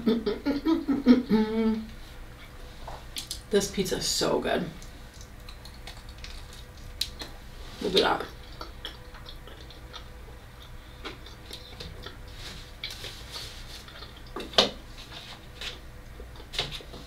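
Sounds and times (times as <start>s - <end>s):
chewing pizza crust: 4.8s - 17.0s.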